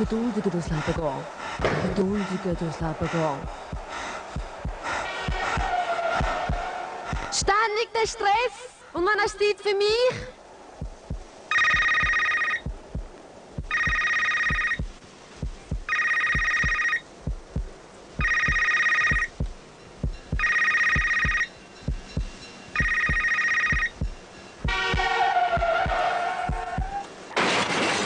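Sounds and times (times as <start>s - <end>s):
low thumping pulse: 0.9s - 7.3s, 10.8s - 24.9s
telephone ringing: 11.5s - 12.7s, 13.7s - 14.8s, 15.9s - 17.1s, 18.2s - 19.3s, 20.4s - 21.5s, 22.8s - 24.0s.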